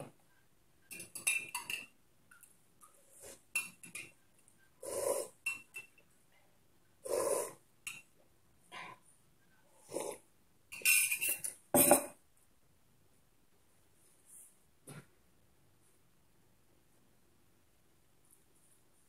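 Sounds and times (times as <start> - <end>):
metal spoon clinking in mug: 0.9 - 1.9, 5.5 - 6.0, 10.7 - 12.1.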